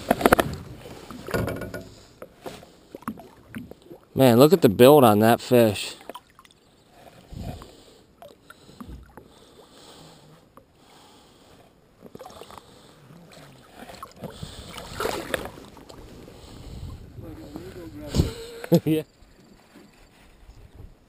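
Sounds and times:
lake water sloshing and lapping: 0:00.0 - 0:04.8, 0:05.4 - 0:21.0
fish tail splash: 0:13.4 - 0:16.0.

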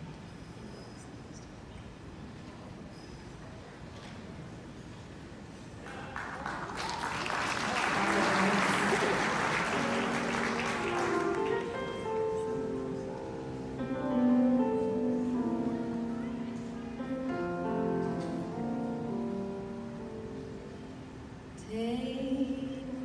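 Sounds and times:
audience applause: 0:05.8 - 0:12.5.

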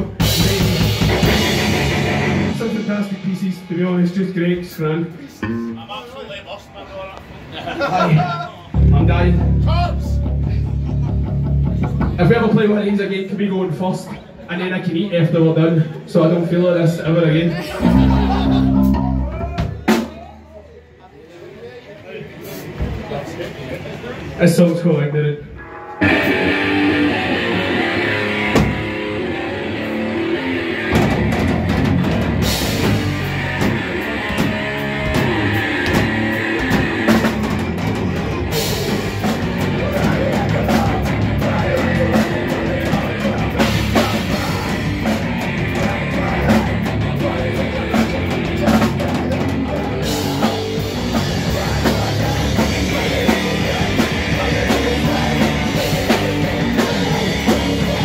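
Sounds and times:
distorted electric guitar: 0:00.0 - 0:03.4, 0:05.4 - 0:05.9, 0:08.8 - 0:12.2, 0:17.8 - 0:19.8, 0:25.6 - 0:58.0
drum kit: 0:00.0 - 0:04.2, 0:08.8 - 0:12.8, 0:17.7 - 0:20.6, 0:25.6 - 0:58.0.

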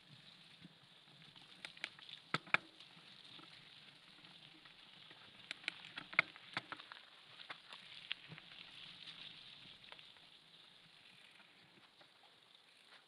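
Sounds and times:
faint steady hiss: 0:00.0 - 0:13.0
bike clicks and rattles: 0:05.4 - 0:07.8.

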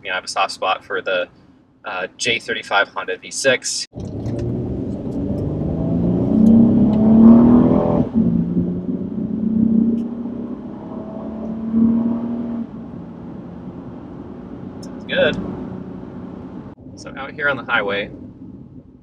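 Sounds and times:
car engine accelerating: 0:03.9 - 0:18.6.

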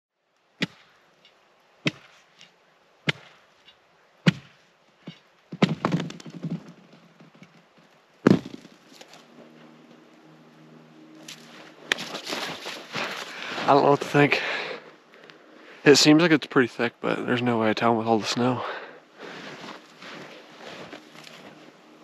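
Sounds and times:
chopping strikes into ice: 0:04.2 - 0:04.5.

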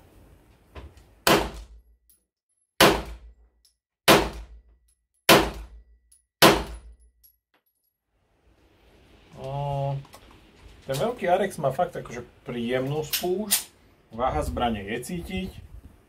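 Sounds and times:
pistol shots: 0:01.2 - 0:01.8, 0:02.8 - 0:03.3, 0:04.1 - 0:04.6, 0:05.3 - 0:05.8, 0:06.4 - 0:06.9.

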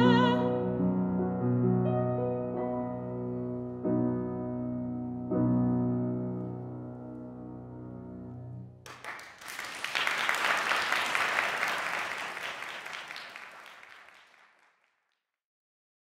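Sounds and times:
piano chord: 0:00.0 - 0:08.8
audience applause: 0:08.9 - 0:15.0.

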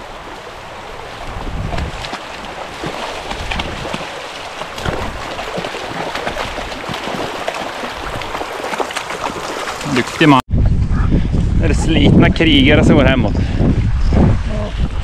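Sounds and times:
splashing of wading: 0:00.0 - 0:10.4
stream running over rocks: 0:00.0 - 0:10.4.

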